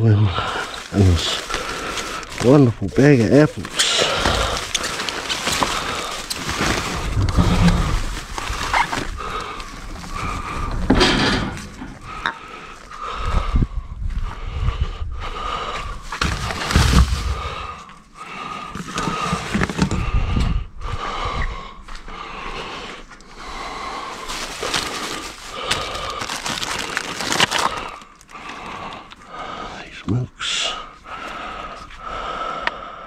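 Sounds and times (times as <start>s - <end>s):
person breathing hard: 0.1s - 33.0s
plastic bags rustling: 0.3s - 12.9s, 16.0s - 17.9s, 18.7s - 20.0s, 23.3s - 29.2s.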